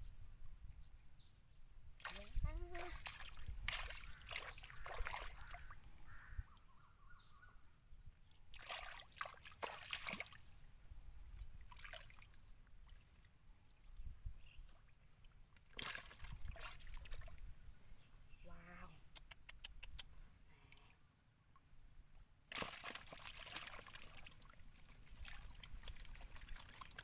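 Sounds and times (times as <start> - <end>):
hands sloshing in muddy water: 2.0 - 5.8, 8.5 - 10.5, 11.6 - 13.3, 15.6 - 17.5, 22.5 - 27.0.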